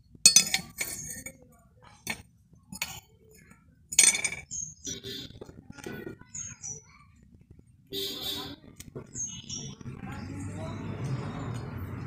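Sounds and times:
metal knife clinking on anvil: 0:00.3 - 0:01.4.

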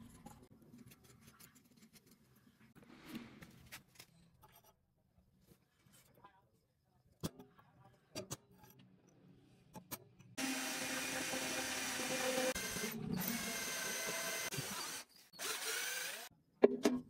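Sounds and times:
electric drill boring metal: 0:10.4 - 0:16.3.

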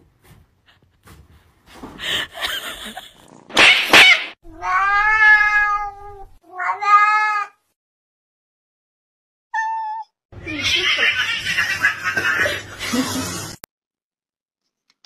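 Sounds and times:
cat making harsh sounds: 0:03.5 - 0:07.6
cat meowing: 0:04.5 - 0:07.6, 0:09.6 - 0:10.7.

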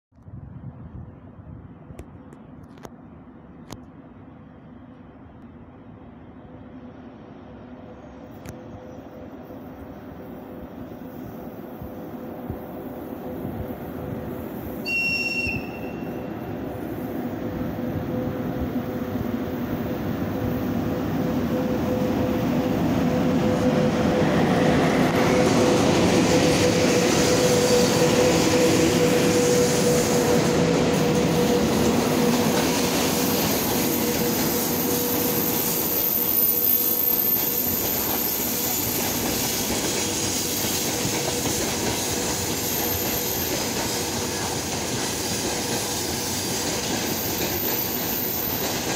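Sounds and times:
freight train wheels rumbling: 0:01.7 - 0:48.9
locomotive whine: 0:04.6 - 0:48.9
high whistle: 0:14.8 - 0:16.3.

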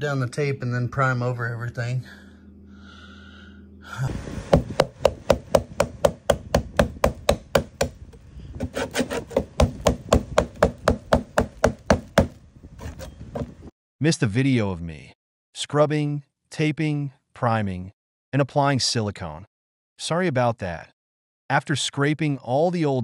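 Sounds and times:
metal scraper scraping sealant: 0:08.6 - 0:09.8.

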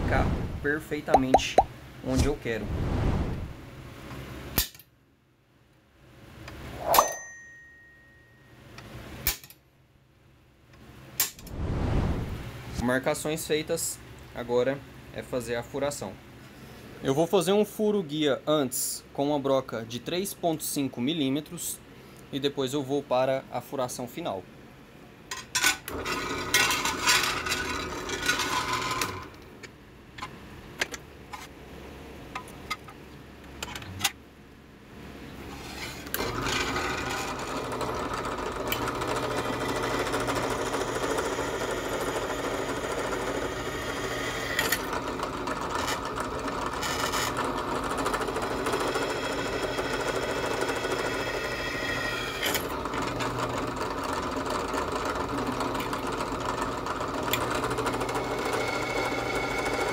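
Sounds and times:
drill press drilling steel: 0:36.2 - 0:59.9.

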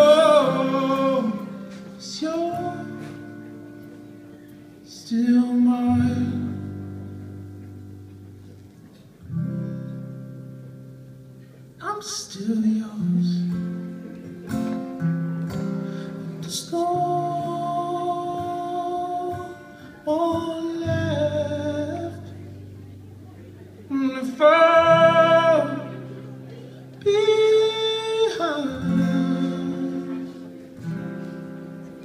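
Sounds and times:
man singing long held notes: 0:00.0 - 0:03.3, 0:16.0 - 0:22.4, 0:23.9 - 0:30.7
acoustic guitar chords: 0:00.0 - 0:32.0.

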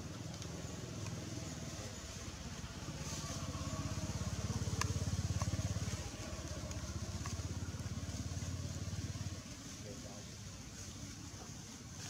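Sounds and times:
small engine rumbling: 0:00.0 - 0:12.0
faint clicks: 0:04.1 - 0:07.9.

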